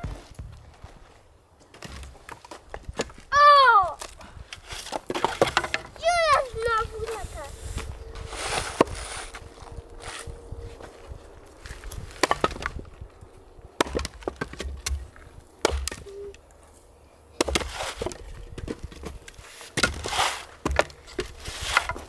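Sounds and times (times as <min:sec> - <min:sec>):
axe chopping firewood: 0:04.8 - 0:06.4, 0:12.0 - 0:12.8, 0:13.8 - 0:16.3, 0:17.4 - 0:22.0
wood cracking and splitting: 0:11.6 - 0:13.0, 0:13.8 - 0:16.4.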